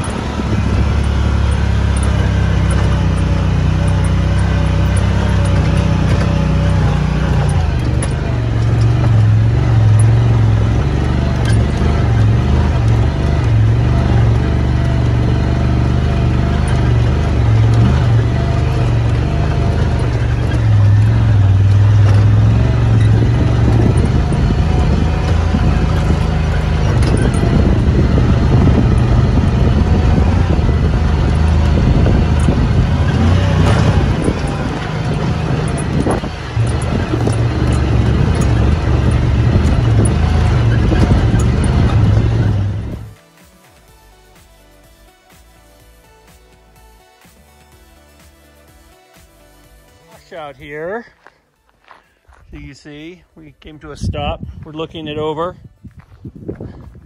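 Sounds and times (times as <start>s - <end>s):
chassis bumping and rattling over stones: 0.0s - 43.3s
vehicle engine running at low revs: 0.0s - 43.4s.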